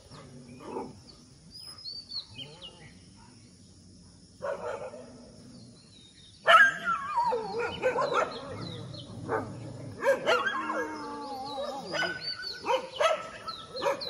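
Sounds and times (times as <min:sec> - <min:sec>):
dogs barking and yelping: 0:06.4 - 0:14.0.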